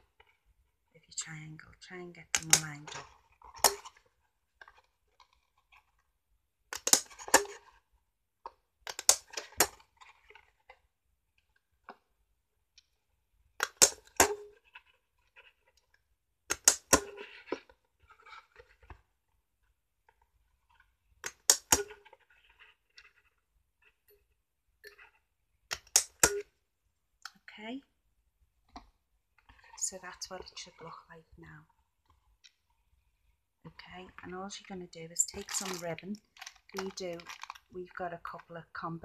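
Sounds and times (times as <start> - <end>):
card rustling: 35.3 - 37.7.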